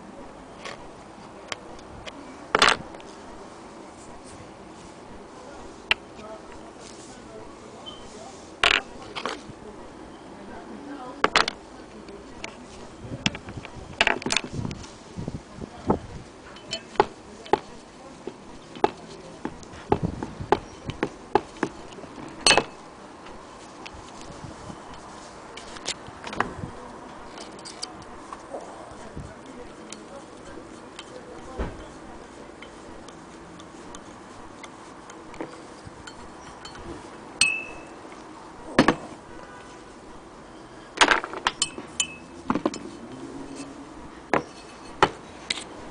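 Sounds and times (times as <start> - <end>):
metal clink: 37.4 - 37.9, 41.5 - 42.8.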